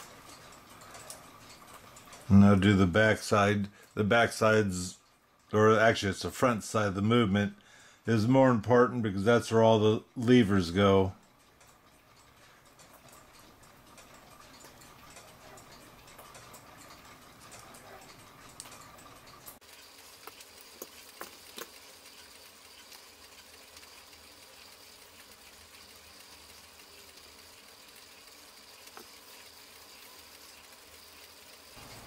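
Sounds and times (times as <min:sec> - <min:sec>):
light clicks and taps: 0:20.2 - 0:23.0.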